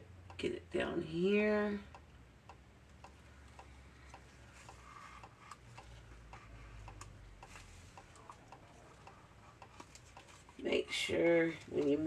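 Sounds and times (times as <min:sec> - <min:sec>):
faint steady ticking: 0:00.0 - 0:12.0.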